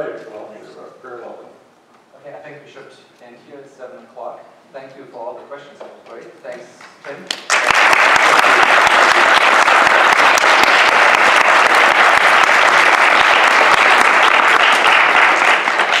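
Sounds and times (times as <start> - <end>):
audience applauding: 7.3 - 16.0.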